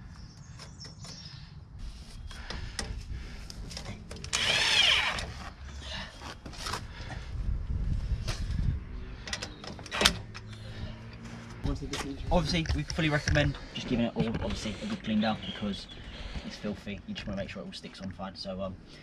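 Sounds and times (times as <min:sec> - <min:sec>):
power drill whine: 0:04.3 - 0:05.5.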